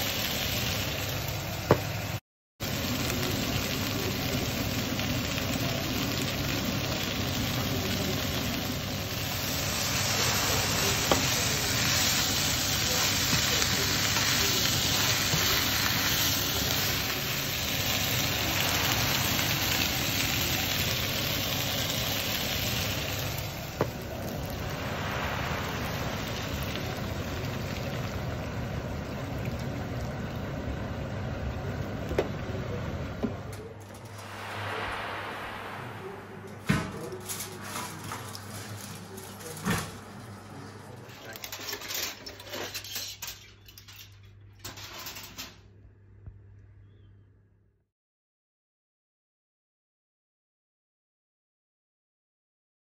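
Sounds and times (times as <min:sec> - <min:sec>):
vegetables sizzling in a pan: 0:00.0 - 0:31.5.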